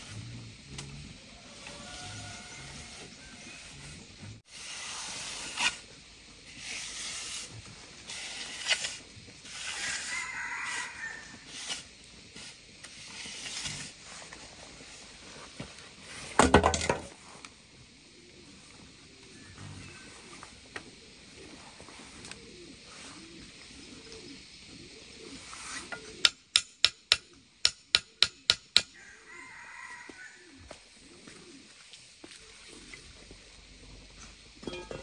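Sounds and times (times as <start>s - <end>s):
hoe scraping wet concrete: 1.7s - 5.9s, 6.5s - 14.3s.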